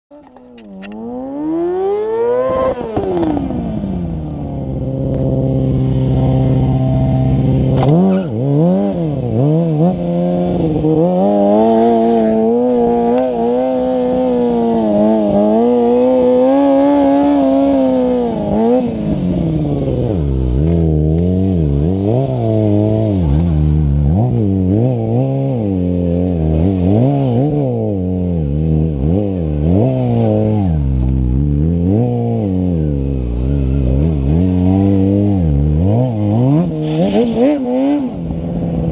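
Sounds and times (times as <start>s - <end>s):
motorcycle engine revving: 0.1s - 38.9s.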